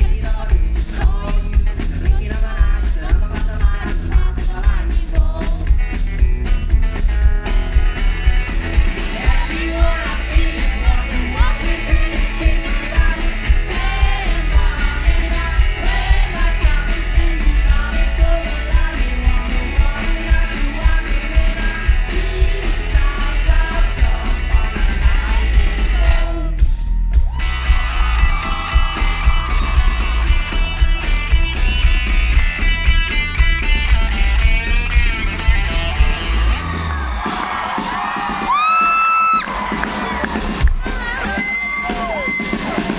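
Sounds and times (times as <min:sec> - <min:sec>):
man singing: 0:00.0 - 0:05.7, 0:09.0 - 0:27.0
bass and drums: 0:00.0 - 0:42.9
strummed electric guitar: 0:27.4 - 0:36.9.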